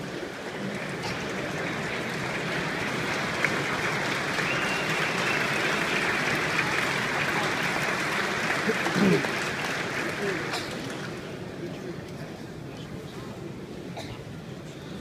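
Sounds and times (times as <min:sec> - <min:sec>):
stadium crowd applauding: 0:00.0 - 0:11.6.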